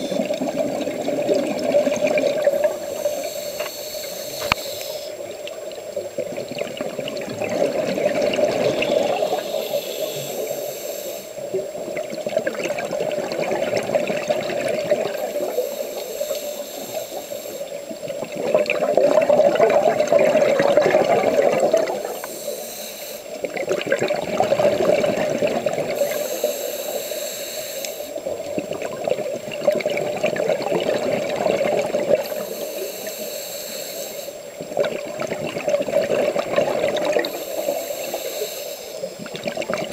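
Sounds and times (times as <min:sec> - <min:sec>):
exhaled bubbles rushing: 0:00.0 - 0:03.7, 0:05.2 - 0:09.5, 0:11.4 - 0:15.6, 0:17.7 - 0:22.2, 0:23.3 - 0:26.3, 0:28.2 - 0:32.4, 0:34.5 - 0:37.4, 0:39.1 - 0:39.9
regulator hissing on inhale: 0:01.8 - 0:05.8, 0:08.6 - 0:11.6, 0:13.8 - 0:18.3, 0:20.7 - 0:23.6, 0:25.2 - 0:28.5, 0:31.7 - 0:34.8, 0:36.9 - 0:39.3.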